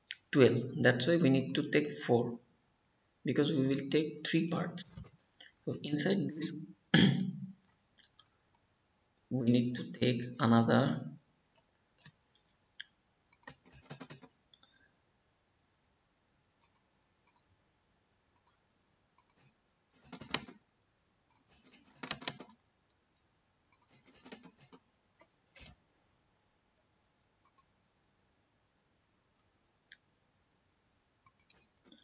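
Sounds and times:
typing on computer keyboard: 13.3s - 14.4s, 19.2s - 20.6s, 21.3s - 22.6s, 23.7s - 25.7s, 31.2s - 31.8s.

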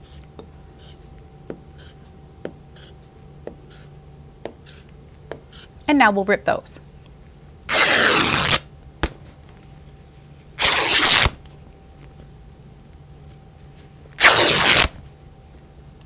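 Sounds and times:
fabric tearing by hand: 7.7s - 8.7s, 10.6s - 11.4s, 14.2s - 15.0s.

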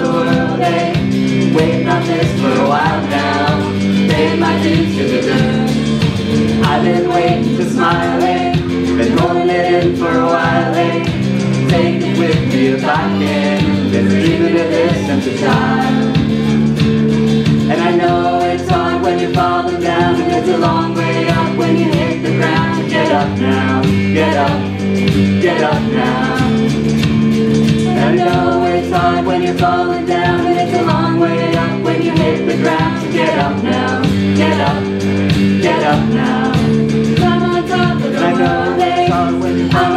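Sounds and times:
person singing lead: 0.0s - 16.7s, 17.7s - 26.8s, 27.9s - 35.0s, 35.6s - 39.9s
acoustic guitars playing: 0.0s - 39.9s
audience singing along: 0.0s - 39.9s.

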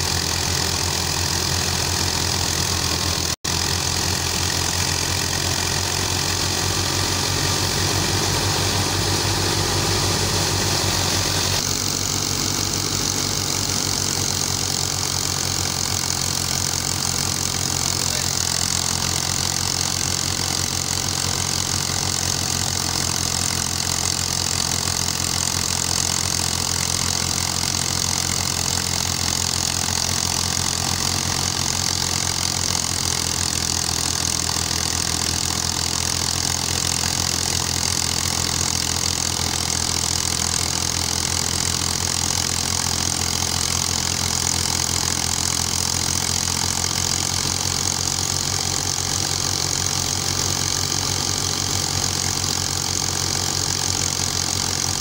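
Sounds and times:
thresher hissing: 0.0s - 23.1s
tractor engine running under load: 0.0s - 55.0s.

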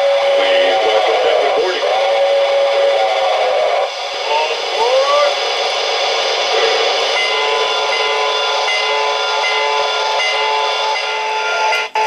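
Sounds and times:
model locomotive hiss and tones: 3.0s - 12.0s.

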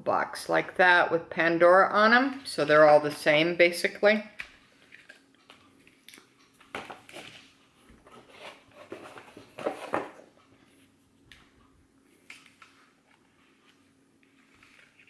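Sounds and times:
cardboard boxes knocking and rustling: 8.0s - 10.2s.

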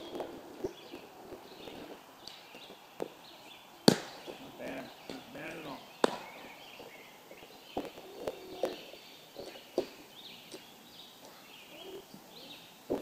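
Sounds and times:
birds chirping: 0.0s - 13.0s
baseball smacking into glove: 3.8s - 4.4s, 5.1s - 6.5s.

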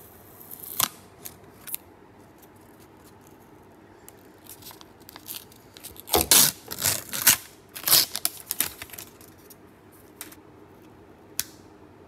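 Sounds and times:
protective film peeling: 4.2s - 9.5s.

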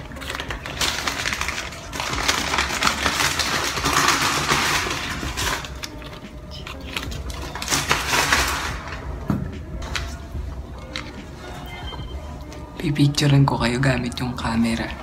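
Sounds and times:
rustling through a bag: 0.0s - 9.0s.

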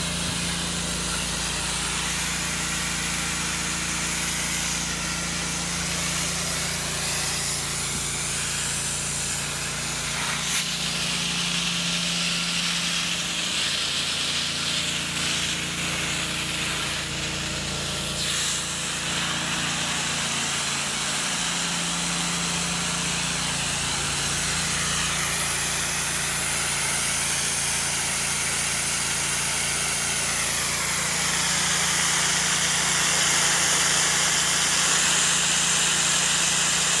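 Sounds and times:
vacuum suction hissing air: 3.2s - 11.6s, 18.0s - 19.8s.

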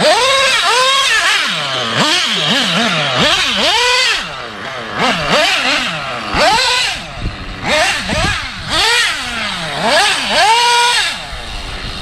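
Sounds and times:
rc car engine revving: 0.0s - 12.0s.

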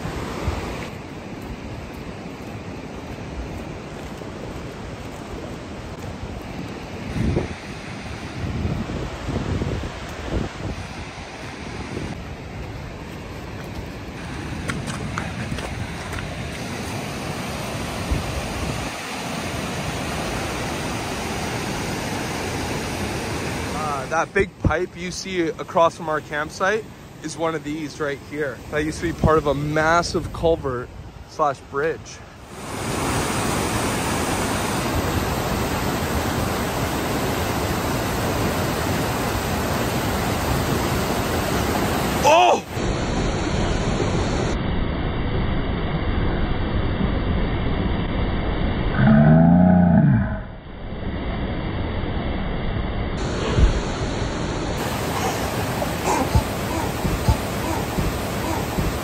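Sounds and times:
wind buffeting microphone: 0.0s - 16.9s, 53.2s - 59.0s
rushing river water: 0.0s - 44.6s, 53.2s - 59.0s
footsteps on gravel: 12.7s - 17.0s
water rushing from pipe: 53.2s - 59.0s.

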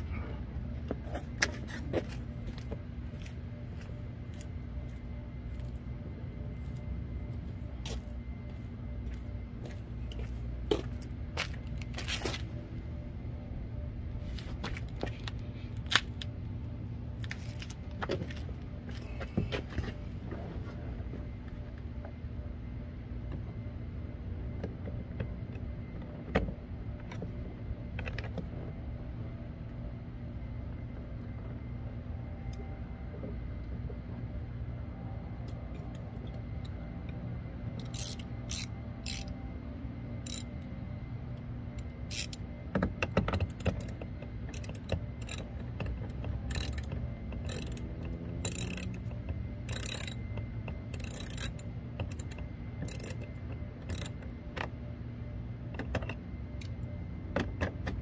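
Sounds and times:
steady low hum: 0.0s - 58.0s
hand tool clicking on fasteners: 49.7s - 54.1s.

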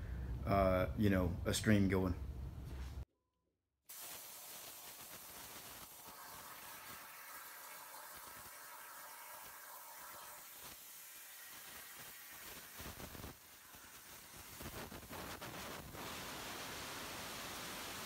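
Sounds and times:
plasma arc hissing: 3.9s - 18.0s.

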